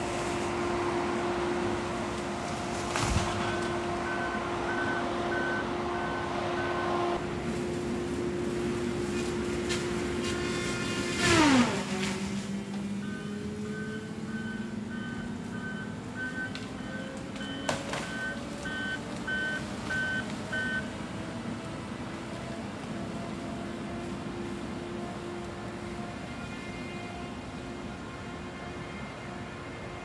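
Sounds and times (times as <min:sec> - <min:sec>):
heavy machine engine running: 0:00.0 - 0:30.0
backup alarm beeping: 0:03.4 - 0:07.0, 0:13.0 - 0:20.9.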